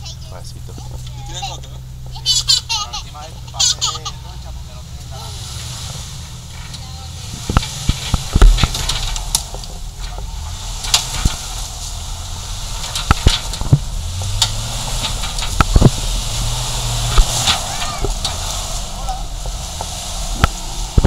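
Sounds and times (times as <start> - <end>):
vehicle engine running low: 0.0 - 21.0
tyres knocking on rocks: 12.8 - 18.7.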